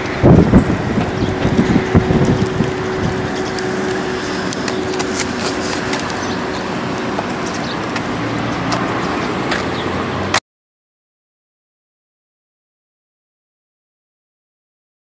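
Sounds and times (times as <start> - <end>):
constant rushing noise: 0.0 - 10.4.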